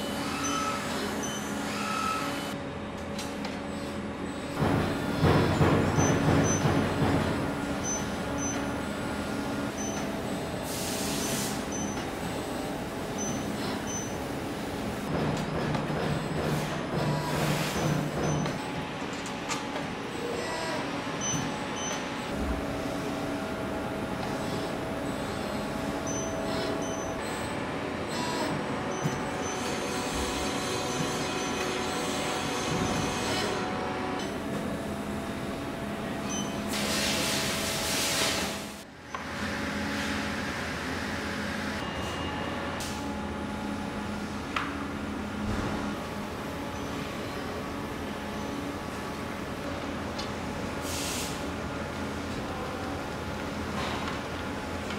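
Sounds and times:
air hiss: 10.6s - 11.7s
machine hiss: 10.6s - 12.0s, 36.7s - 38.8s.

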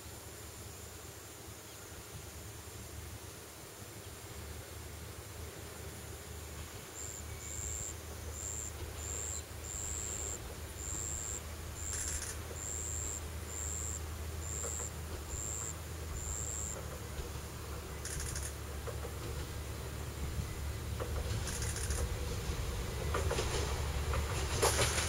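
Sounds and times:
insect buzzing: 7.0s - 16.8s.

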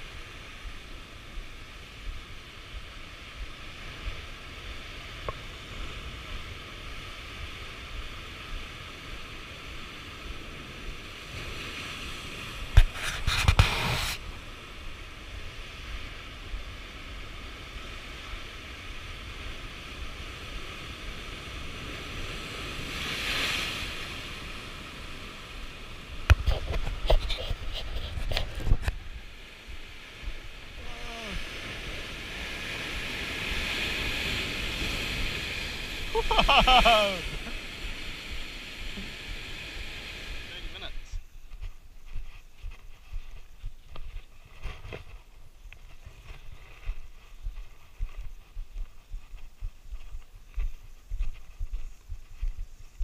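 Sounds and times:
waves crashing: 0.0s - 41.3s
water rushing over rocks: 30.5s - 41.1s.

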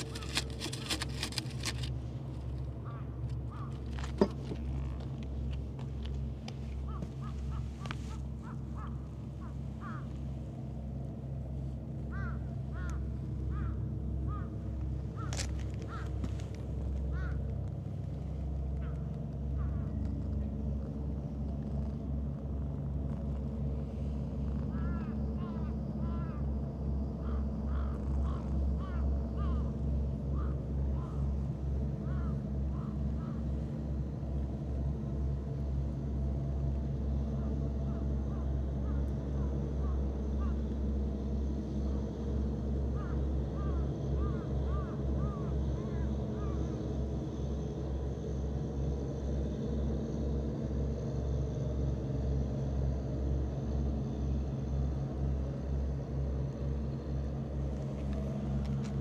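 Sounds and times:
steady low hum: 0.0s - 59.0s
birds calling: 2.7s - 4.7s, 6.7s - 10.2s, 12.1s - 17.5s, 24.7s - 26.5s, 27.2s - 31.4s, 32.0s - 33.5s, 37.4s - 40.6s, 42.9s - 46.8s.

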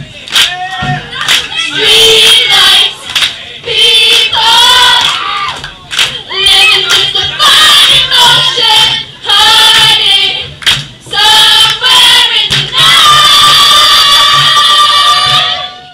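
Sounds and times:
low beat: 0.0s - 5.2s
crowd of girls singing: 0.0s - 15.9s.

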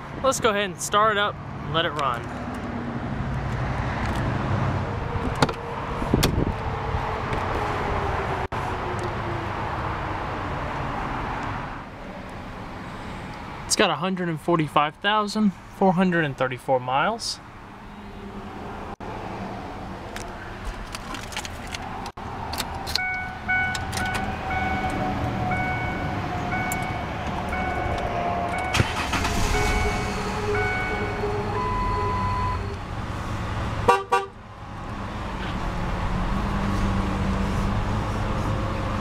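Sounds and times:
two-tone dashboard warning chime: 23.0s - 32.7s
car engine idling: 28.6s - 31.2s.

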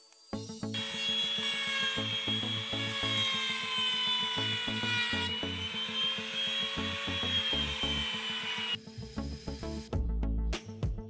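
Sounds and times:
background music: 0.3s - 11.0s
router whining while cutting wood: 0.8s - 8.8s.

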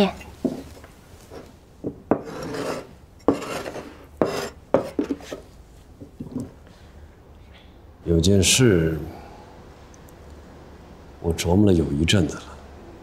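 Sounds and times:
blade scraping on wood: 2.1s - 5.4s.

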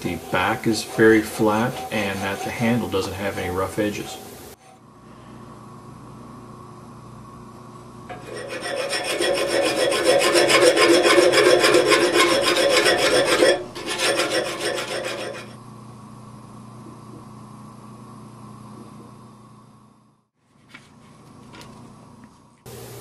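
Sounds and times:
hand file rasping on iron: 0.0s - 4.2s, 8.1s - 15.6s.

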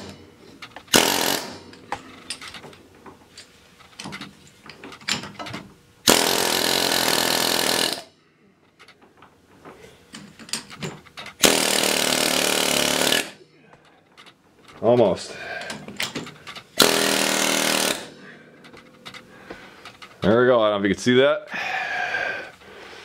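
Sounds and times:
pneumatic air hammer: 0.0s - 2.6s, 6.0s - 8.1s, 11.2s - 13.4s, 16.1s - 18.3s.

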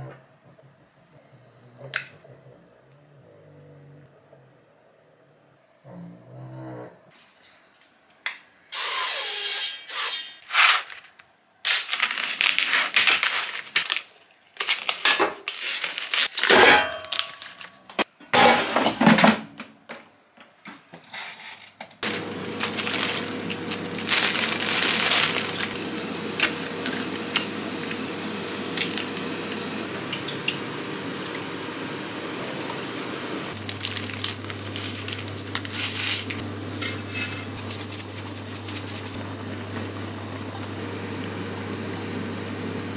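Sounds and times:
clattering and rustling salad: 11.8s - 19.4s, 21.0s - 25.8s, 33.6s - 39.2s
kitchen appliance hum: 22.0s - 42.9s.

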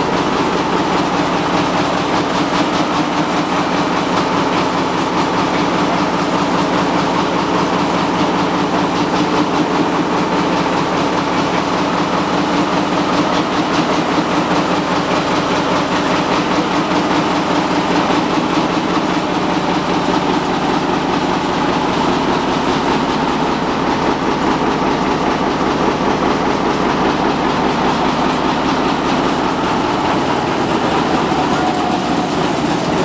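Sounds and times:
diesel engine running: 0.0s - 33.0s.

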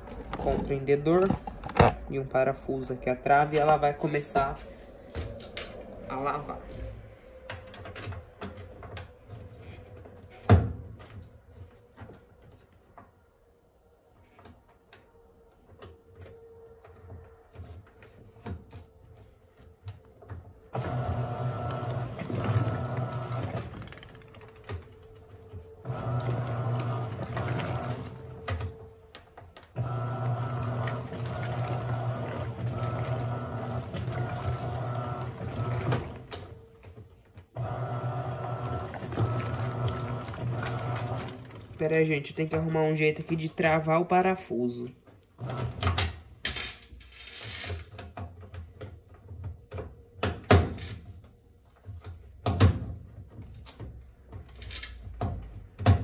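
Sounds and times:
washing machine motor humming: 20.7s - 29.1s, 29.8s - 36.9s, 37.6s - 42.8s, 45.4s - 46.0s.

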